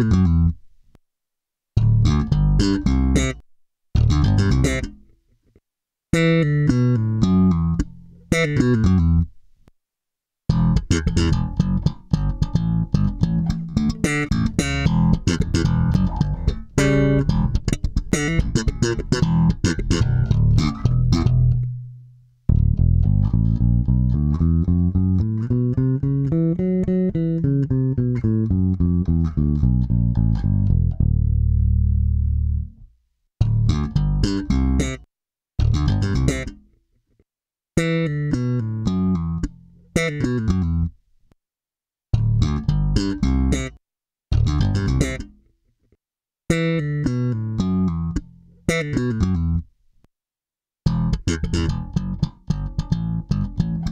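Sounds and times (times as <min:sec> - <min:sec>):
electric bass playing: 0:00.0 - 0:00.6, 0:01.8 - 0:03.4, 0:04.0 - 0:05.0, 0:06.2 - 0:09.3, 0:10.5 - 0:35.0, 0:35.6 - 0:36.6, 0:42.2 - 0:43.7, 0:44.3 - 0:45.3, 0:50.9 - 0:53.9.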